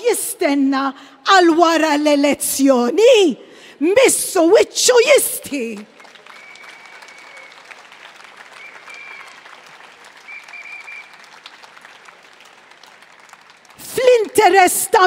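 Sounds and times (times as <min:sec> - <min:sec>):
large crowd applauding: 0:05.8 - 0:14.4.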